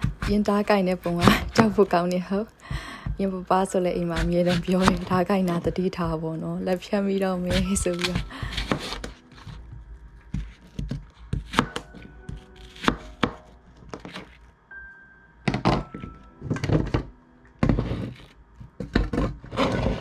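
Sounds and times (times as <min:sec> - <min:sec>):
quiet background music: 0:00.0 - 0:20.0
knife chopping on cutting board: 0:04.1 - 0:05.2, 0:07.5 - 0:09.6, 0:10.3 - 0:14.4.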